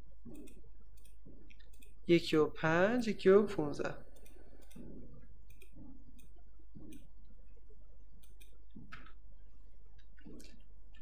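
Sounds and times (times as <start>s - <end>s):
low background hum: 0.0s - 11.0s
computer mouse clicking: 0.2s - 2.0s, 4.1s - 7.1s, 8.2s - 9.2s.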